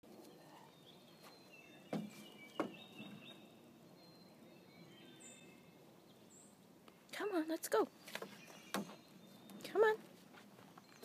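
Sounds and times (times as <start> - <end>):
birds chirping faintly: 0.0 - 11.0
stick knocking on wooden railing: 1.9 - 3.1.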